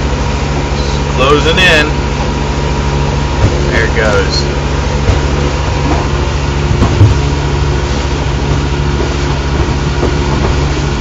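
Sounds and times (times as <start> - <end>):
boat engine droning: 0.0 - 11.0
dull thump: 3.4 - 3.8, 5.0 - 11.0.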